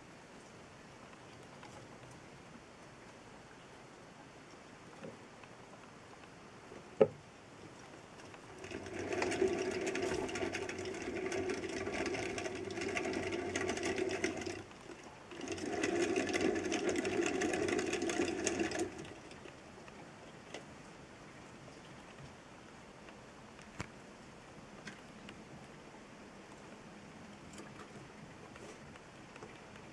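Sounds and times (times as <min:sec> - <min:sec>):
wooden running wheel rattling: 0:08.2 - 0:19.6.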